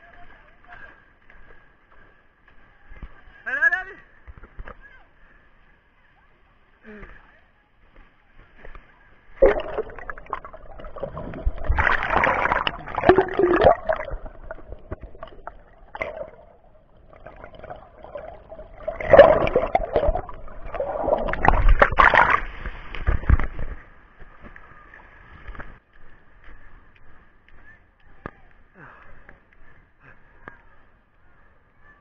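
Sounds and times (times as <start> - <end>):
sea water sloshing and splashing: 9.4 - 25.8.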